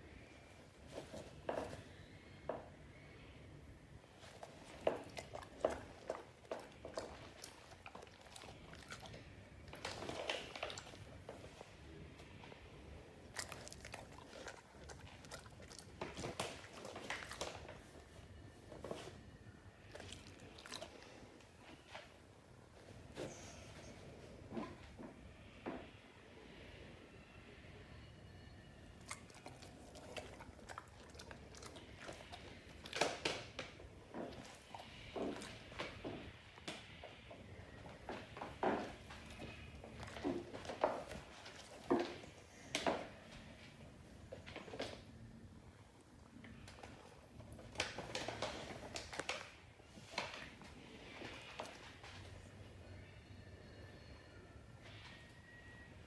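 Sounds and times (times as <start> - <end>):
dog crunching a treat: 4.2 - 11.6, 13.2 - 18.0, 19.9 - 21.3, 29.0 - 36.0, 38.0 - 43.0, 46.6 - 50.6.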